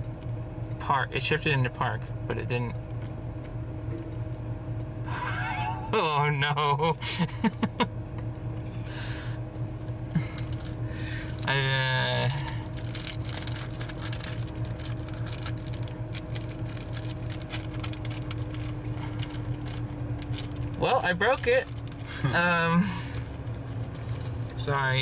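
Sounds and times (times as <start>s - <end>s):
car cabin low hum: 0.0s - 25.0s.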